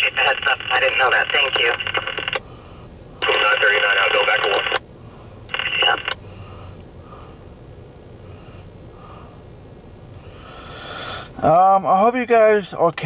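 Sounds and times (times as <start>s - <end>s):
scanner radio burst: 0.0s - 2.4s, 3.2s - 4.8s, 5.5s - 6.2s.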